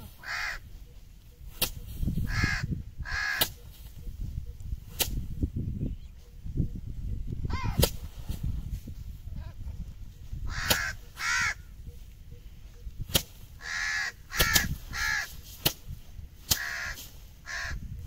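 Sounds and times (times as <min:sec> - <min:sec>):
bird calling harshly: 0:00.0 - 0:04.6, 0:07.5 - 0:07.9, 0:10.4 - 0:15.4, 0:16.5 - 0:17.8
rice stalks thwacking on wooden log: 0:01.5 - 0:01.9, 0:03.4 - 0:03.6, 0:04.9 - 0:05.3, 0:07.8 - 0:08.1, 0:10.6 - 0:11.0, 0:13.1 - 0:13.4, 0:14.3 - 0:17.2.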